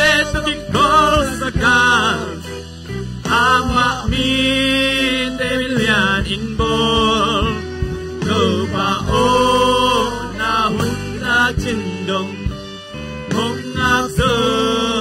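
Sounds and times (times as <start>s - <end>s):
man singing long notes: 0.0s - 15.0s
worship band playing: 0.0s - 15.0s.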